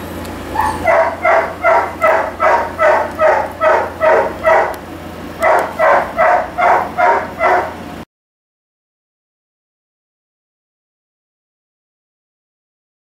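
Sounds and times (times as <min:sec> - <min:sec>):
puppy yelping: 0:00.5 - 0:04.8, 0:05.4 - 0:07.8.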